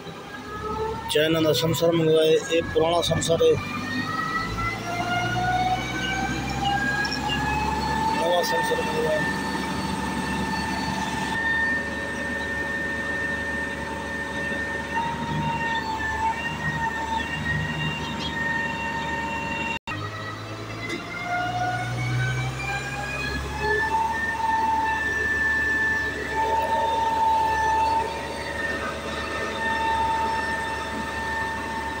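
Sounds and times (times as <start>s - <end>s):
pump truck whining: 0.0s - 32.0s
low engine rumble: 21.6s - 32.0s.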